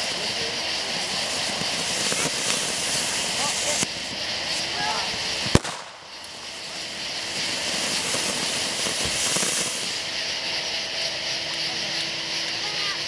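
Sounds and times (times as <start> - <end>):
firework spraying sparks hissing: 0.0 - 13.0
sharp bang: 5.5 - 6.2.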